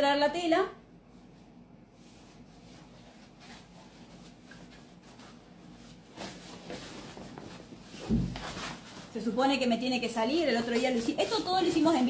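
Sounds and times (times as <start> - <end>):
fabric rustling: 1.0 - 12.0.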